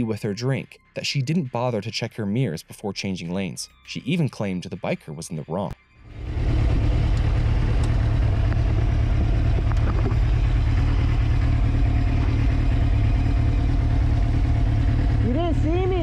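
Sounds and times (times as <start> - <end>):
motorcycle riding: 6.1 - 16.0.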